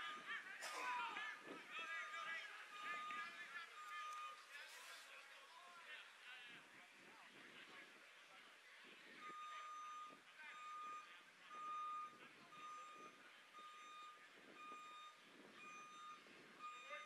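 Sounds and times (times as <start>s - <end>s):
faint voices: 0.0s - 17.0s
reversing alarm beeping: 1.3s - 5.0s, 9.2s - 17.0s.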